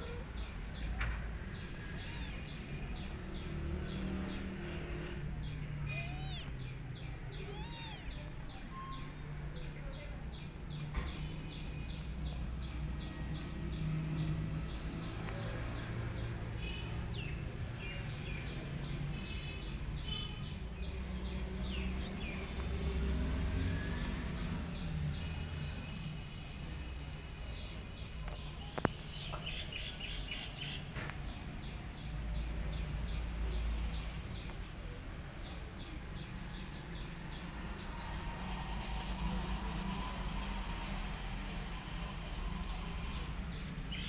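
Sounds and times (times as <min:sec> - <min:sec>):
rapid bird chirping: 0:01.5 - 0:09.3
cat meowing: 0:01.8 - 0:02.6, 0:05.8 - 0:06.6, 0:07.3 - 0:08.9.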